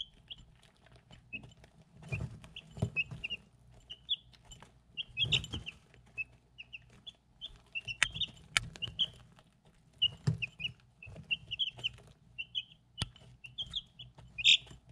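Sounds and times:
beaks tapping ceramic bowl: 0.0s - 9.2s
chicks peeping: 0.0s - 14.9s.

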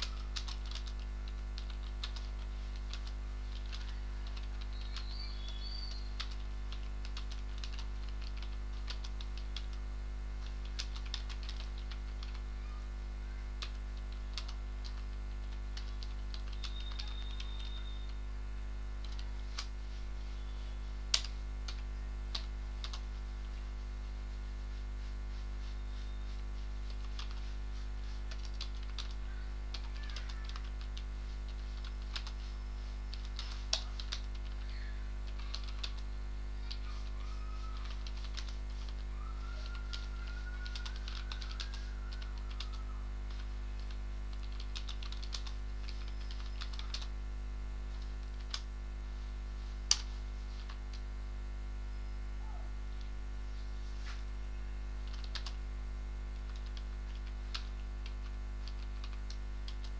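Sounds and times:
keyboard typing: 0.0s - 12.6s, 13.6s - 18.2s, 19.0s - 19.8s, 21.1s - 23.6s, 25.6s - 47.1s, 48.0s - 48.7s, 49.9s - 51.0s, 55.1s - 55.6s, 56.4s - 59.9s
low electrical hum: 0.0s - 59.9s.

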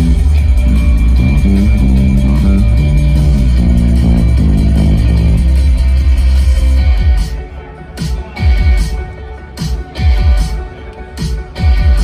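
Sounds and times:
electric guitar: 0.0s - 6.0s
heavy low end: 0.0s - 6.7s
bass guitar: 0.0s - 7.0s.

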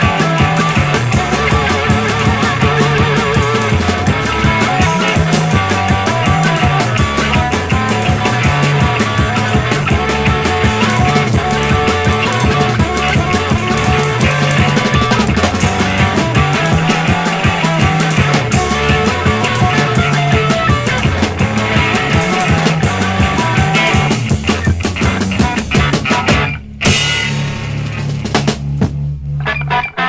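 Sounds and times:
drum kit: 0.0s - 30.0s
electric guitars playing blues: 0.0s - 30.0s.

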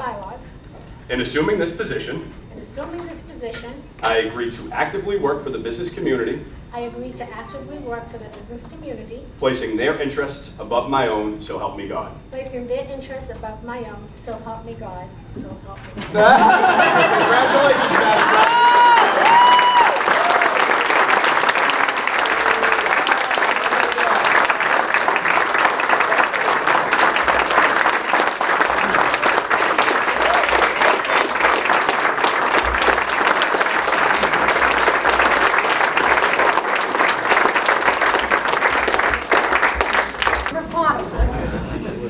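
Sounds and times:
roomful of people applauding: 16.2s - 40.8s.

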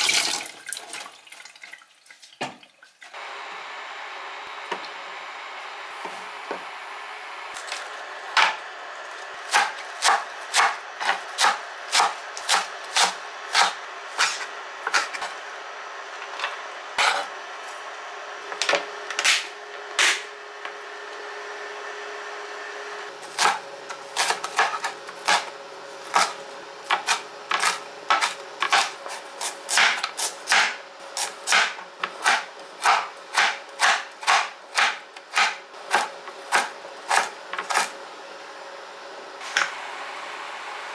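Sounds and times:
knife chopping on wooden board: 9.5s - 15.3s, 23.2s - 23.6s, 24.2s - 25.5s, 26.1s - 37.9s.

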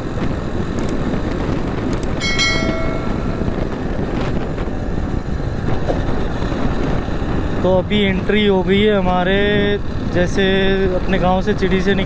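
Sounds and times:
motorcycle running: 0.0s - 12.0s
wind rushing over microphone: 0.0s - 12.0s
bell-like notification chime: 2.2s - 3.9s.

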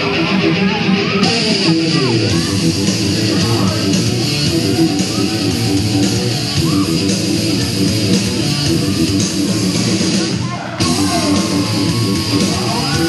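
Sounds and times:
electric guitar rock music: 0.0s - 13.0s.

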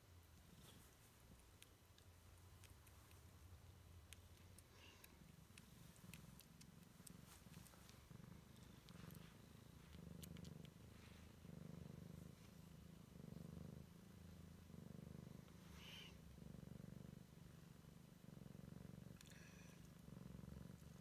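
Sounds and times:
cat purring: 0.0s - 21.0s
faint ticks: 0.7s - 3.4s, 4.0s - 10.8s, 19.1s - 20.1s.

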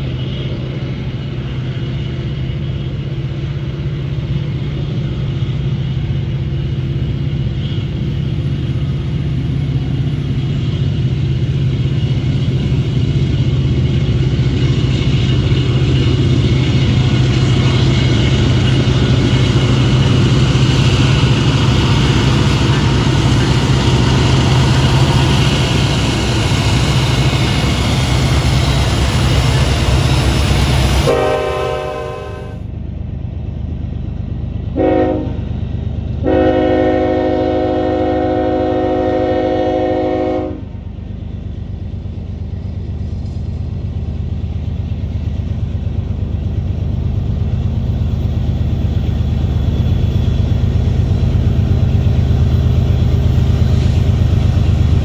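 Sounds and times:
diesel locomotives rumbling: 0.0s - 55.0s
locomotive air horn blasts: 31.1s - 32.6s, 34.8s - 35.4s, 36.2s - 40.7s.

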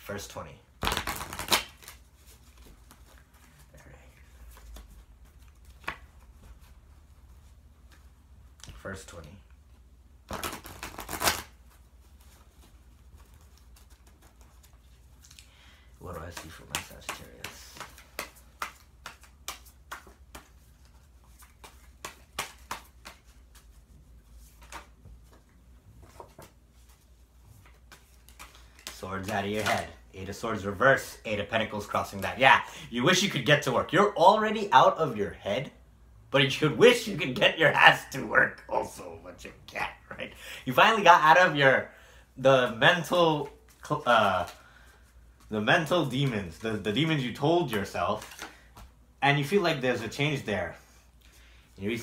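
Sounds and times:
cards shuffling and rustling: 0.8s - 9.4s, 10.3s - 32.5s, 42.6s - 50.3s.

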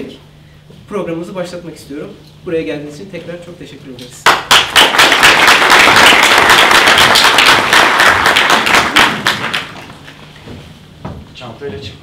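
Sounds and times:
audience applauding: 4.3s - 10.1s.

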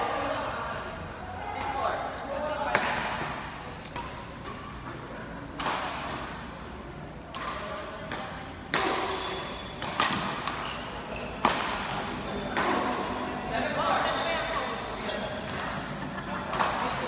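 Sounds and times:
badminton racket hitting shuttlecock: 7.2s - 13.1s.

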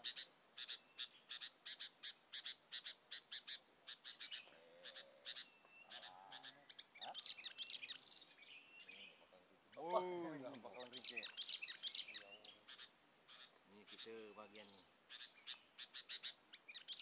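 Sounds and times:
songbird chirping: 0.0s - 17.0s
bird whistles: 10.8s - 14.4s.

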